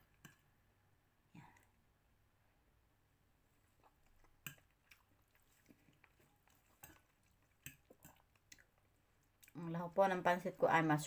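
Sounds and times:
person chewing noodles: 3.6 - 9.6.

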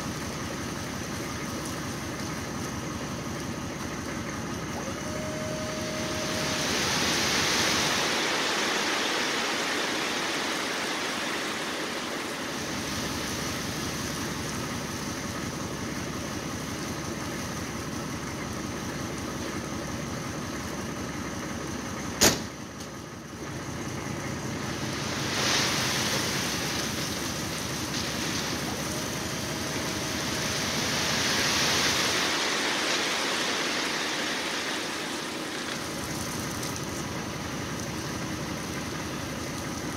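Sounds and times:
dump truck running: 0.0 - 39.9
gravel sliding: 24.4 - 39.9.

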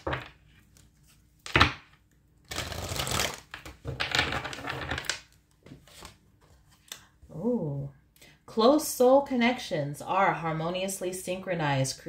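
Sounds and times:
cards being shuffled: 0.0 - 6.9.

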